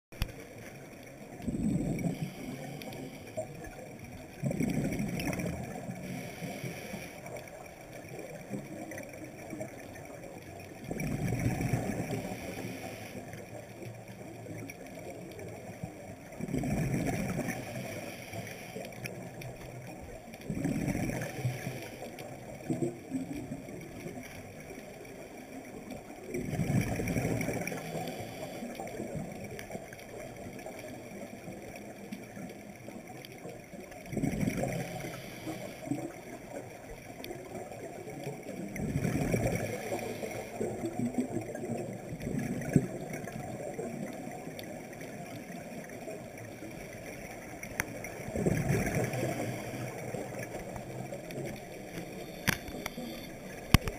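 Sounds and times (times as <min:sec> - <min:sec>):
steady hiss: 0:00.2 - 0:04.3, 0:05.4 - 0:08.1, 0:11.3 - 0:14.2, 0:17.0 - 0:20.2, 0:21.1 - 0:22.6, 0:27.0 - 0:29.2, 0:34.6 - 0:37.2, 0:39.3 - 0:41.0, 0:44.9 - 0:53.9
underwater breath bubbling: 0:01.3 - 0:07.7, 0:10.8 - 0:13.6, 0:16.4 - 0:22.8, 0:26.3 - 0:29.3, 0:34.1 - 0:36.3, 0:38.6 - 0:53.9.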